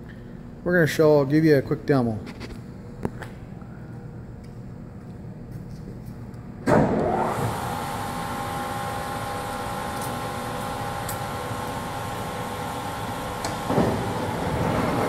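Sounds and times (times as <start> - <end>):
lathe motor whining and humming: 6.7 - 15.0.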